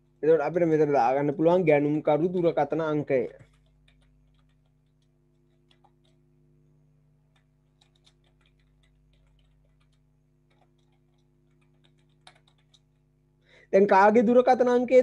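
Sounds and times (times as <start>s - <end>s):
low steady hum: 0.0s - 15.0s
keyboard typing: 2.4s - 6.5s, 7.2s - 13.2s.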